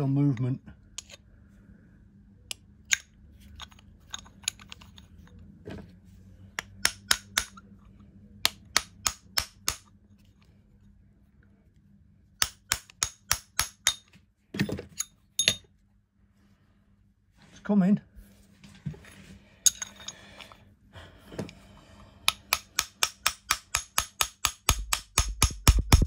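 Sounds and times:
hammer tapping metal punch: 6.6 - 7.6, 12.4 - 14.1, 22.3 - 26.0.

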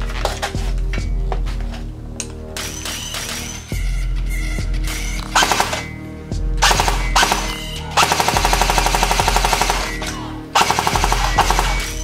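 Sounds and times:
background music: 0.0 - 12.0
toy rifle firing bursts: 5.4 - 5.9, 6.6 - 12.0.

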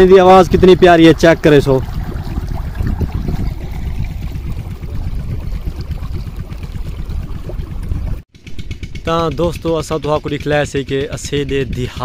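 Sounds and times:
water gushing and splashing: 0.0 - 8.3.

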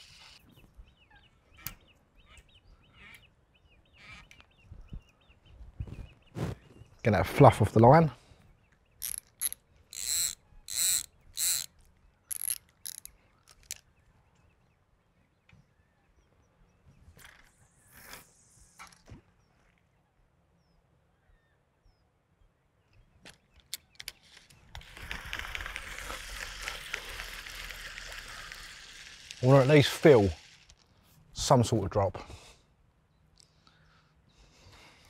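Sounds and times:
fishing reel clicking: 9.0 - 13.8, 24.8 - 30.8
steady hiss: 25.0 - 30.9.

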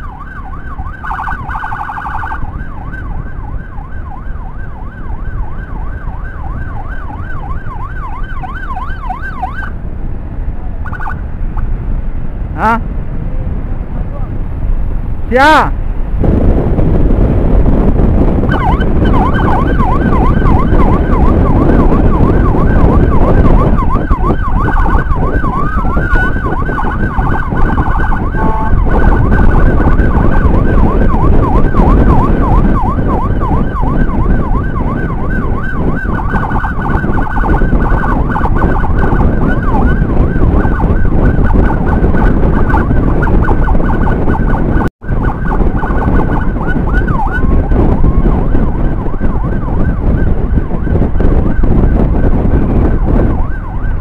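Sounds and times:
siren yelping: 0.0 - 9.8, 10.8 - 11.2, 18.4 - 54.0
wind: 0.0 - 54.0.

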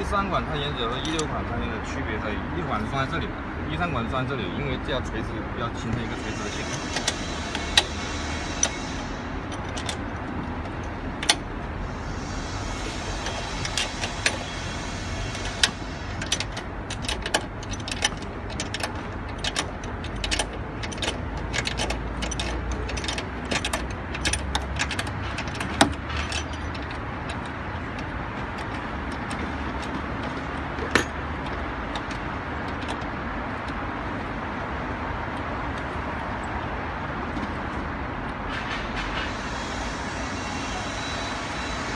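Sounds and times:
wrench clicking and clinking: 13.1 - 33.8.

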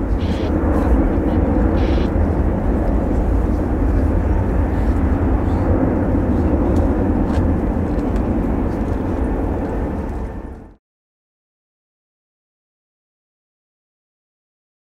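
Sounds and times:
jet engines rumbling: 0.0 - 10.8.

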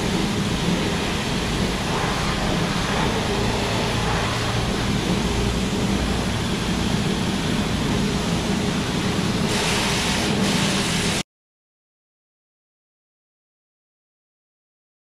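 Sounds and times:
pressure washer spraying water: 0.0 - 11.2.

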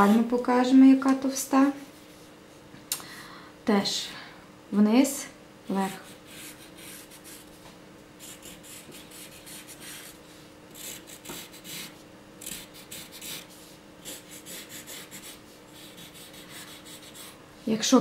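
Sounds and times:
faint steady hum: 0.0 - 18.0
pencil scratching on paper: 5.9 - 7.6, 8.2 - 10.2, 10.8 - 17.4.

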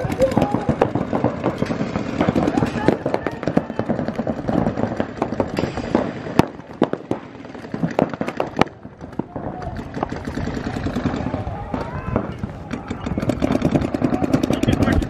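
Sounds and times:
paintball markers firing: 0.0 - 15.0.

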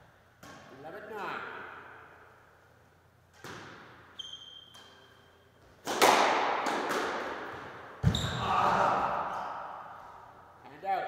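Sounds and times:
racket striking ball: 5.8 - 8.2.

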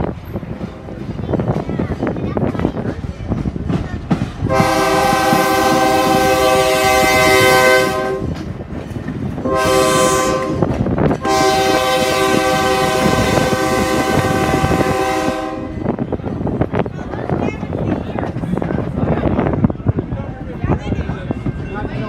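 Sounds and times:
low rumble of moving train: 0.0 - 22.0
train horn blasts: 4.5 - 8.4, 9.4 - 16.0.

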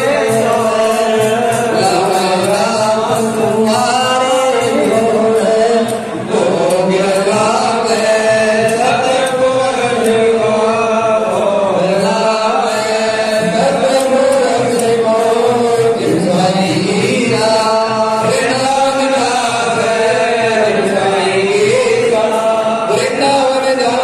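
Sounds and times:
devotional chanting with music: 0.0 - 24.0.

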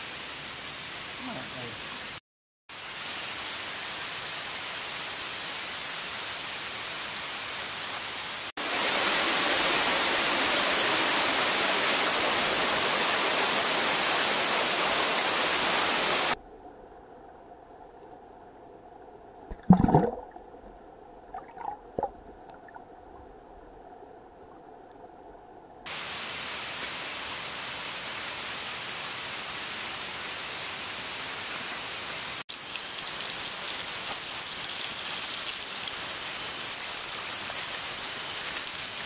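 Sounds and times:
butter and oil sizzling: 32.5 - 39.0
fire hissing under pot: 32.5 - 39.0.

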